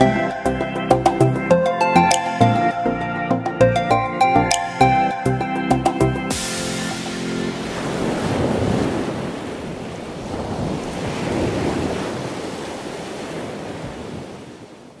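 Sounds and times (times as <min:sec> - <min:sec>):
ocean surf washing onto sand: 0:06.3 - 0:15.0
wind on microphone: 0:07.6 - 0:15.0.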